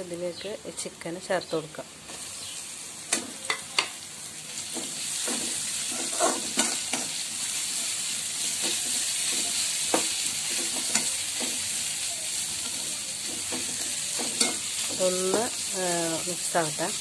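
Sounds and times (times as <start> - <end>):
food sizzling in oil: 0.0 - 17.0
metal spatula scraping a pan: 4.6 - 11.7, 12.6 - 15.6.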